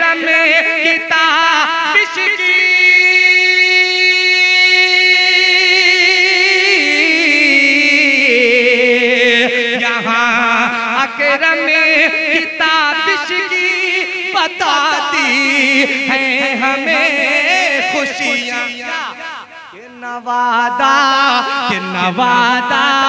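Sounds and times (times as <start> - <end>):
man singing through a microphone: 0.0 - 23.0.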